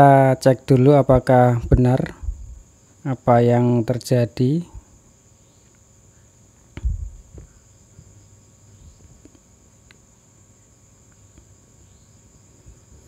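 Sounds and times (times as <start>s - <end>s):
steady high-pitched whine: 0.0s - 13.0s
sharp thump: 6.8s - 7.5s
small knock: 6.8s - 7.6s.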